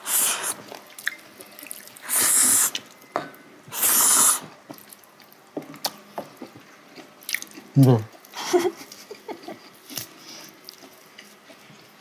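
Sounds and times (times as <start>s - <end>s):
slurping noodles: 0.0s - 0.7s, 2.0s - 2.8s, 3.7s - 4.5s.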